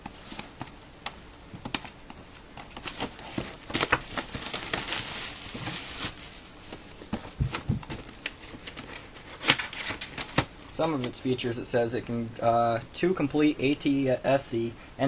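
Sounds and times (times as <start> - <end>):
plastic shrink wrap crinkling: 0.1 - 10.5
cardboard box knocks: 7.2 - 8.0.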